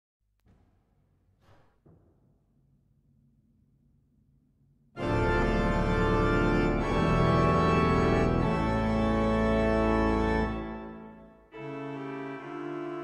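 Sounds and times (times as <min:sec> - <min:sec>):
pipe organ chords: 0:05.0 - 0:13.0.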